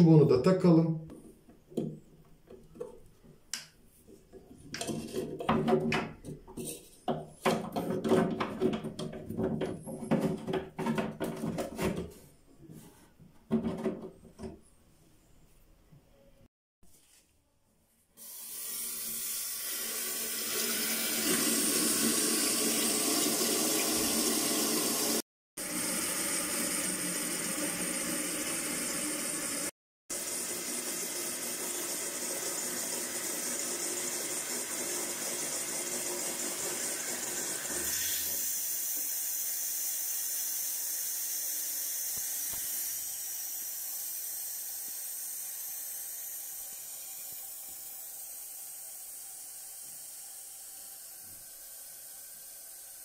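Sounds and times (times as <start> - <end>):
toilet cistern refilling hiss: 18.2 - 53.0.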